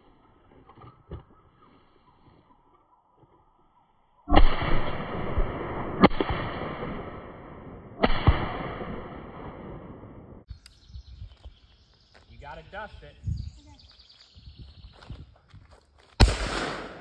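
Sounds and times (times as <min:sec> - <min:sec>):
shotgun shots echoing: 0:04.3 - 0:10.4, 0:16.2 - 0:17.0.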